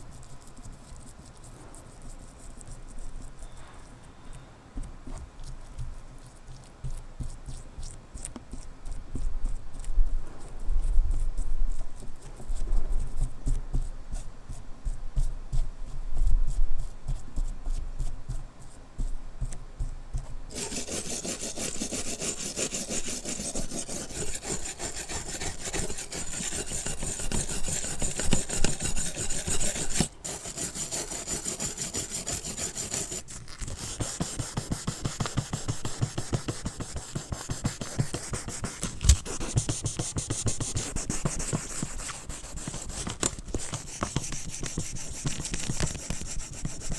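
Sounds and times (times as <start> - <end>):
brush tapping: 19.0 - 46.9
wire brush scrubbing metal: 20.5 - 35.2
sanding sponge rubbing metal: 20.5 - 46.9.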